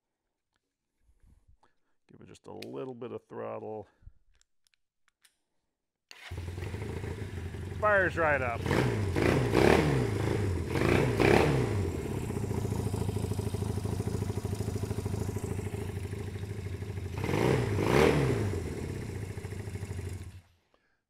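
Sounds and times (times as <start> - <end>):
motorcycle engine idling and revving: 6.2 - 20.5.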